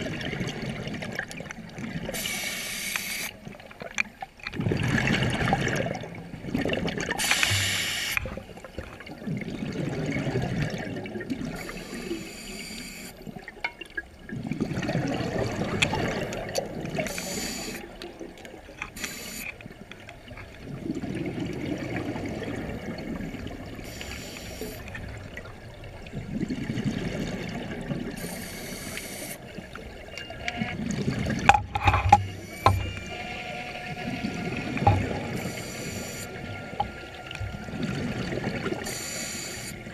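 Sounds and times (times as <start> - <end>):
exhaled air bubbling: 0.0 - 39.9
regulator inhale hiss: 2.2 - 3.3, 7.2 - 8.2, 11.6 - 13.2, 17.1 - 17.9, 19.0 - 19.5, 23.8 - 24.9, 28.2 - 29.4, 35.4 - 36.4, 38.8 - 39.8.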